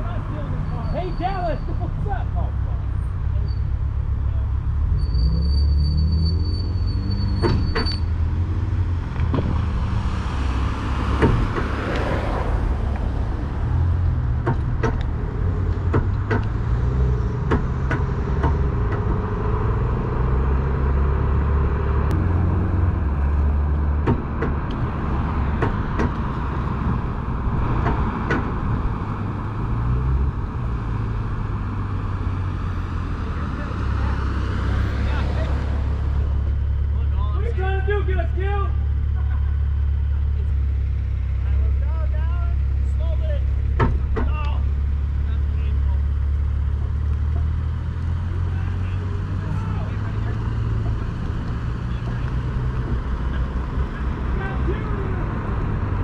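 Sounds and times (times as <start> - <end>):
road noise: 0.0 - 56.0
sharp clicks and knocks: 9.1 - 9.6, 11.1 - 12.1, 14.0 - 16.8, 17.4 - 19.2, 23.4 - 24.9, 25.5 - 27.0, 27.6 - 28.7, 43.5 - 44.6.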